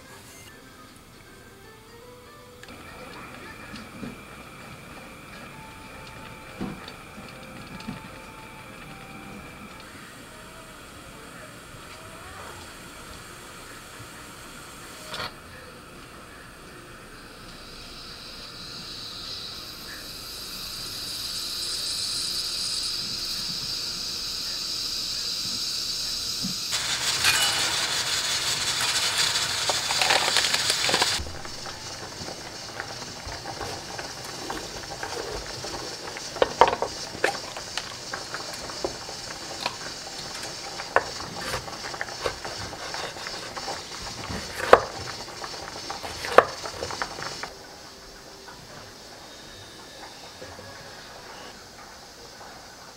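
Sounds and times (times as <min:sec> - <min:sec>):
pressure cooker hissing steam: 0:00.0 - 0:01.5, 0:02.6 - 0:52.9
knife slicing pepper: 0:44.4 - 0:45.0.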